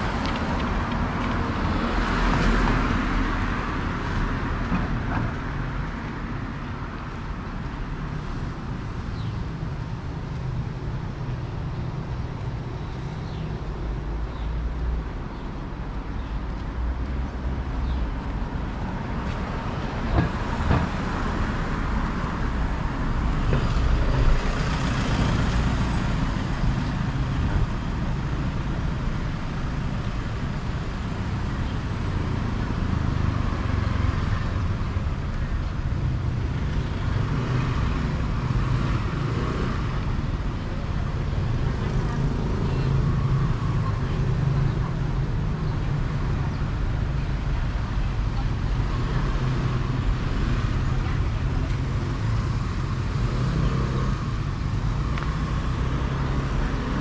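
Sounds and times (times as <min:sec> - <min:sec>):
street traffic rumble: 0:00.0 - 0:57.0
vehicles passing: 0:00.0 - 0:57.0.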